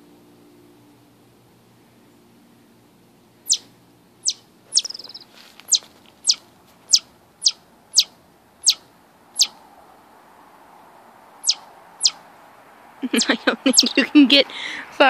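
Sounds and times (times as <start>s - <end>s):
chipmunk alarm call chips: 3.4s - 9.6s, 11.4s - 12.2s, 13.0s - 14.2s
chipmunk rapid trill: 3.5s - 8.8s, 9.4s - 9.6s, 11.4s - 12.2s, 13.1s - 14.2s.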